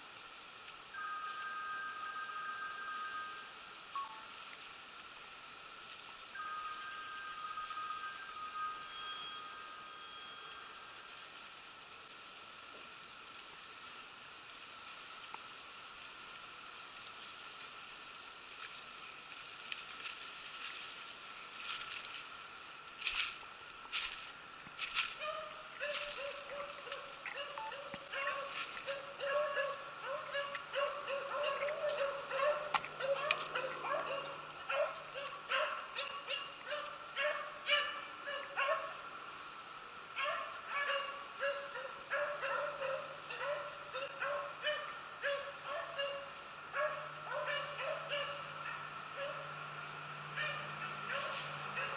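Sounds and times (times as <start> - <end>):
woodland background hiss: 0.0 - 51.9
footsteps crunching dry leaves: 12.4 - 37.9
dogs barking: 25.2 - 39.0, 40.2 - 49.6, 50.3 - 51.9.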